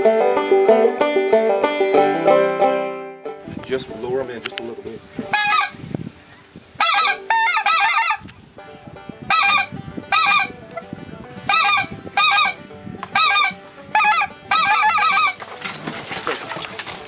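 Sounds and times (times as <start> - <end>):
goose yodel calls: 5.3 - 5.8, 6.8 - 8.2, 9.3 - 10.6, 11.5 - 15.4.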